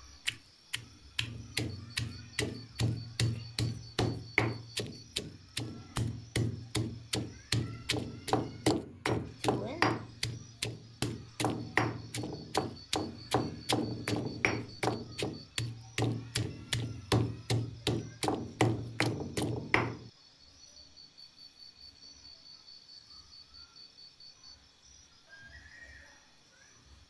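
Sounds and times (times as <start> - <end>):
stone pestle pounding in mortar: 0.7 - 20.1.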